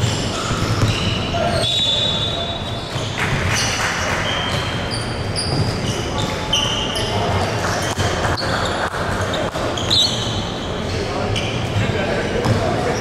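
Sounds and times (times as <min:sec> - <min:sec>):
basketball bouncing: 0:00.0 - 0:01.2, 0:12.4 - 0:12.7
sneaker squeaks on hardwood: 0:00.0 - 0:13.0.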